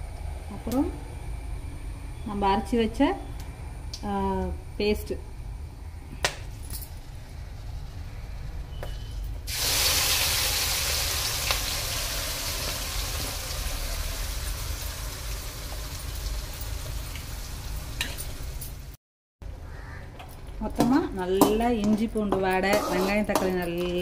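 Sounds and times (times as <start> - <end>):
paste sizzling in hot oil: 9.5 - 18.5.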